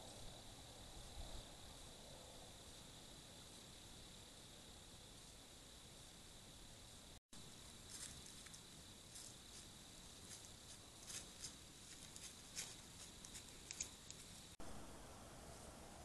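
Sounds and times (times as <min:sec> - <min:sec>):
faint steady hiss: 0:00.0 - 0:16.0
hooves crunching dry leaves: 0:07.8 - 0:14.5.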